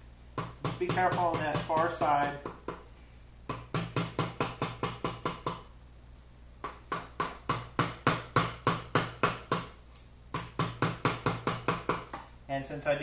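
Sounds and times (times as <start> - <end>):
mallet tapping wood chisel: 0.4 - 2.9, 3.5 - 5.7, 6.6 - 12.3.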